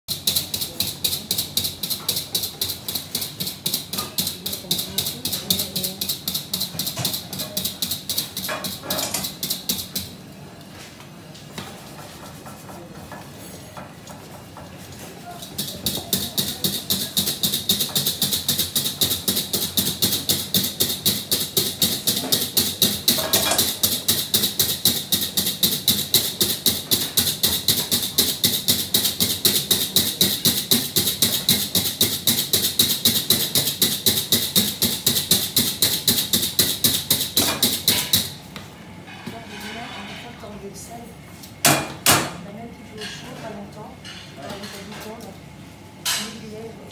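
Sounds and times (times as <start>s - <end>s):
whisk beating eggs in bowl: 0.1s - 10.2s, 11.7s - 38.4s.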